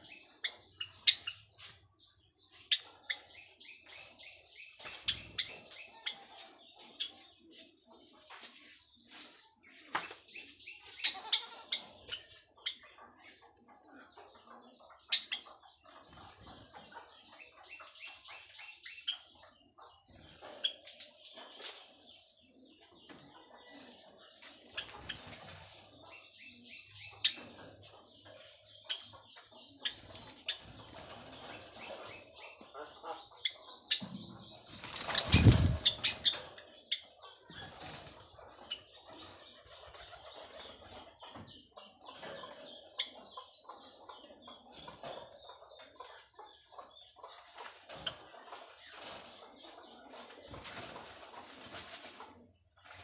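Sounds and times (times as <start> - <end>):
sparrows chirping: 0.0 - 53.0.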